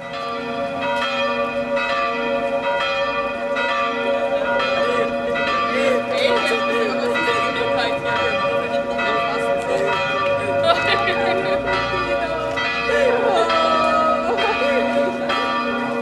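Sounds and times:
church bells ringing: 0.0s - 16.0s
people talking: 10.6s - 15.5s.

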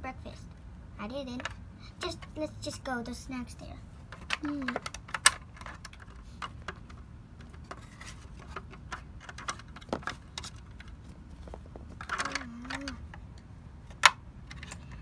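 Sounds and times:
plastic figurines clicking and tapping: 1.3s - 2.4s, 4.1s - 13.2s.

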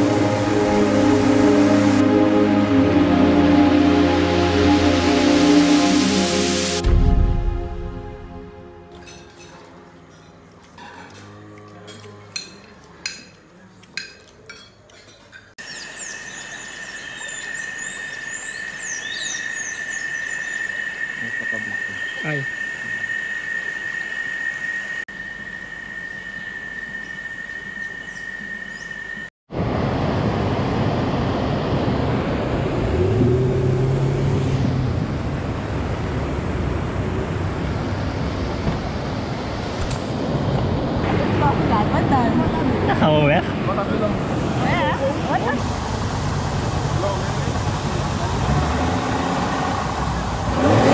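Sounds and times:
birds whistling downward: 15.6s - 29.3s
high insect drone: 15.8s - 29.3s
rushing water: 29.6s - 50.9s
motorboat engine: 31.9s - 39.5s, 45.4s - 50.9s.

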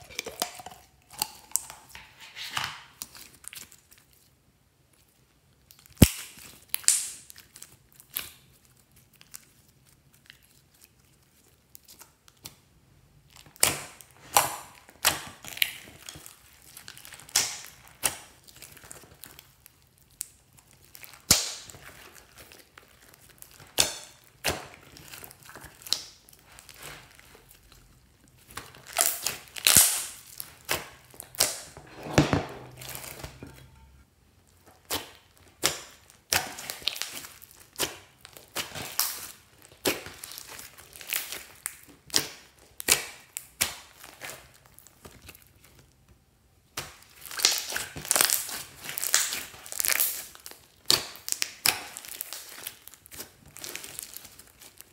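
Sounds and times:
slime popping and crackling: 5.7s - 10.8s, 13.3s - 31.8s, 34.6s - 45.8s, 46.6s - 54.9s.

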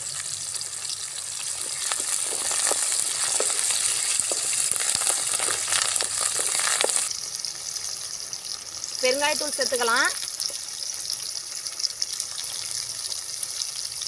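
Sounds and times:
leaves sizzling in hot oil: 0.0s - 14.0s
oil popping: 0.6s - 7.1s.

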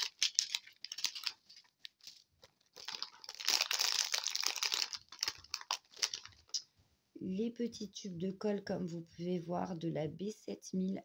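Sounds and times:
packaging crinkling: 0.0s - 6.6s.

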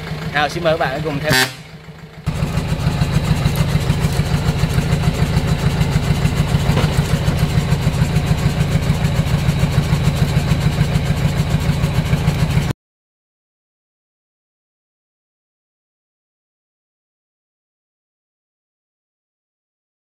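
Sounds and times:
diesel truck engine idling: 0.0s - 12.7s.

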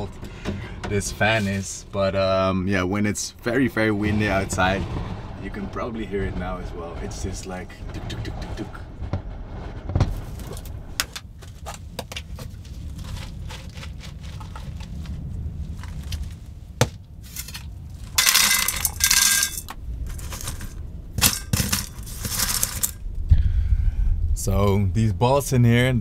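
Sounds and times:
low wind rumble: 0.0s - 26.0s
roof vent fan rattling: 18.2s - 23.1s.

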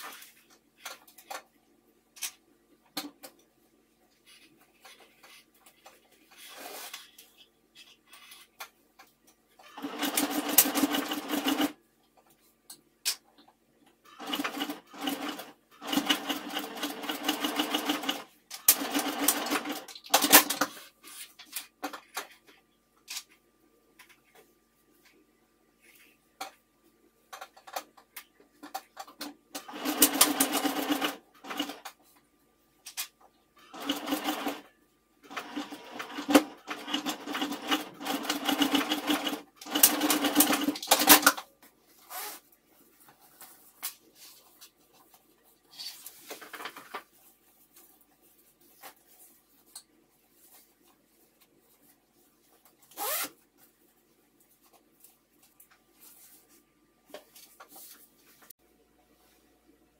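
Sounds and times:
sewing machine stitching: 9.6s - 11.8s, 14.1s - 20.6s, 29.5s - 31.9s, 33.6s - 41.4s.

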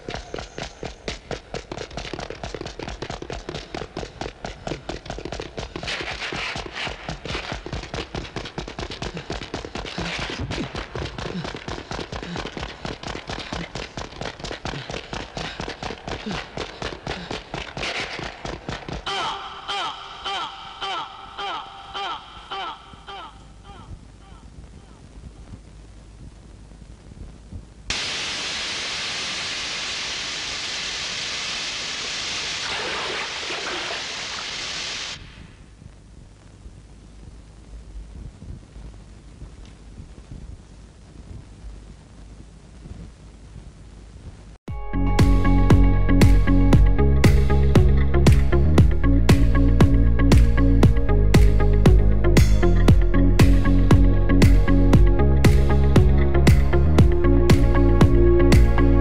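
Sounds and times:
rapid sharp cracks and bangs: 5.2s - 14.3s
spray hissing from cut pipe: 27.9s - 35.3s.

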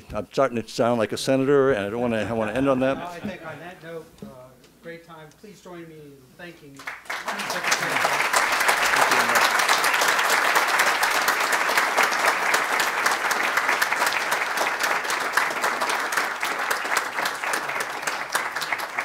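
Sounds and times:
audience applauding: 6.8s - 19.0s.

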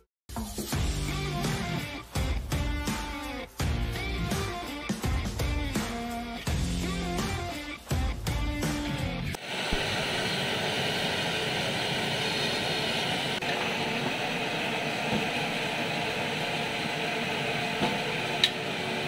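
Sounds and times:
oil sizzling and bubbling: 9.4s - 19.0s.

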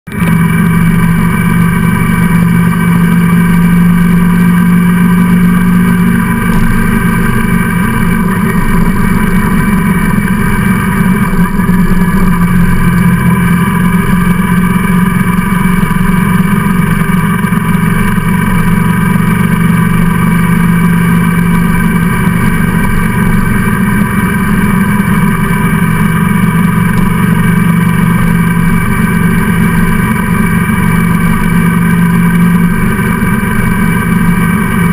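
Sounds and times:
road noise: 0.1s - 34.9s
vehicle engine running steadily: 0.1s - 34.9s.

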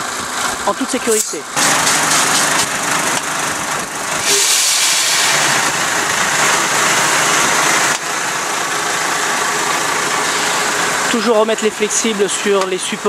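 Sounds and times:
diesel engine running: 0.0s - 13.0s
compressed air hissing: 4.2s - 5.9s.

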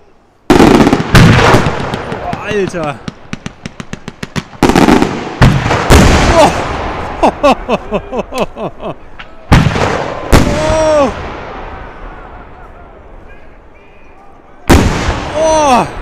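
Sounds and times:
firework sharp cracks: 0.5s - 7.2s, 9.5s - 12.0s, 14.7s - 15.5s
firework heavy booms: 0.5s - 7.4s, 9.5s - 12.6s, 14.7s - 16.0s
people calling out: 10.2s - 16.0s.

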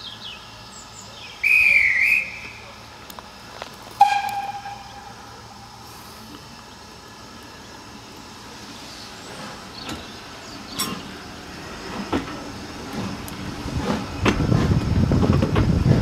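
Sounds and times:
steam train chuffing bursts: 1.4s - 3.0s, 4.0s - 15.2s.

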